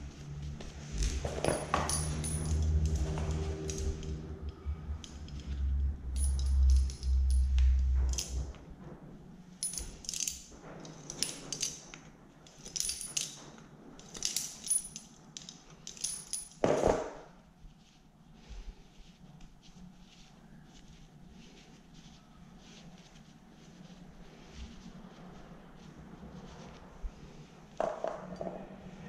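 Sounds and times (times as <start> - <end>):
low rumble of cover handled: 0.0 - 14.2.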